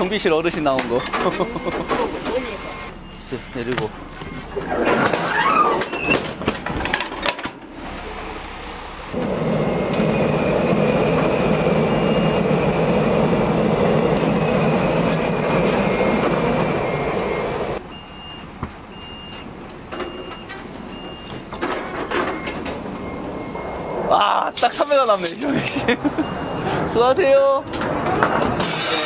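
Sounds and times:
heavy truck machinery running: 0.0s - 29.0s
warning beeper short beeps: 0.4s - 4.6s.

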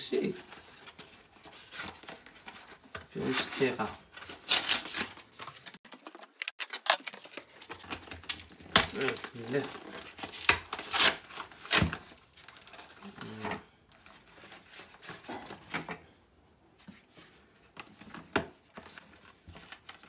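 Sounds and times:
paper being torn and crinkled: 3.2s - 13.4s.

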